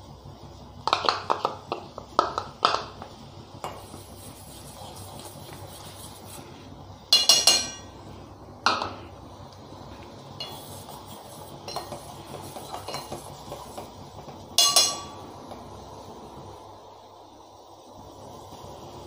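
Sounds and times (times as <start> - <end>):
ladle clinking against metal pot: 11.7 - 12.0, 12.7 - 13.2, 14.6 - 15.2.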